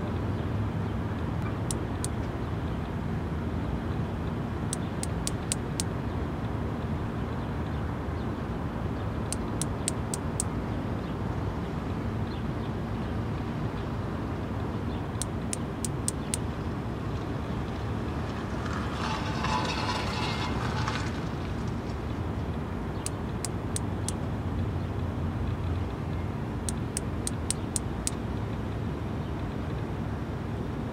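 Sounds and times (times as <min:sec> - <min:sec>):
low background rumble: 0:00.0 - 0:30.9
cicada wing-clicking: 0:04.7 - 0:05.9, 0:09.3 - 0:10.5, 0:15.1 - 0:16.5, 0:26.6 - 0:28.2.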